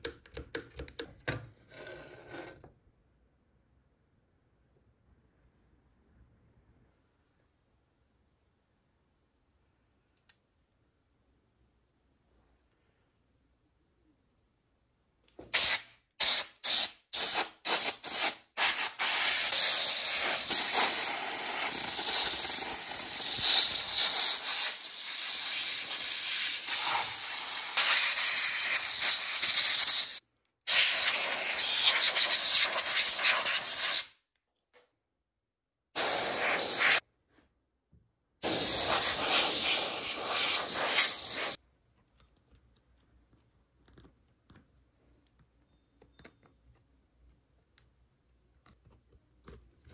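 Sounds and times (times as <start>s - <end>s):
compressed air blow gun blasting: 15.6s - 34.0s, 36.0s - 37.0s, 38.4s - 41.6s.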